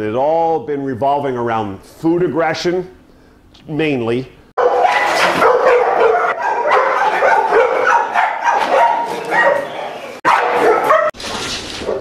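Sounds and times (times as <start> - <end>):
dog barking aggressively: 4.6 - 11.2.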